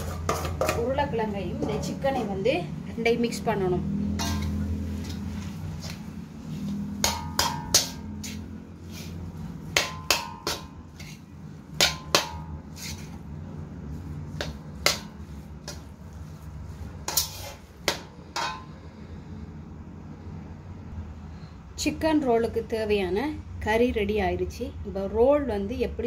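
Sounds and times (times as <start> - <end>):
metal spatula scraping a steel pan: 0.0 - 2.4, 4.0 - 19.0.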